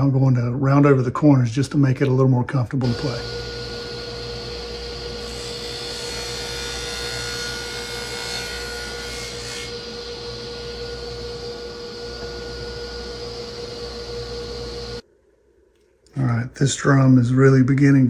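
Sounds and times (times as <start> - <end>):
table saw cutting wood: 2.8 - 15.0.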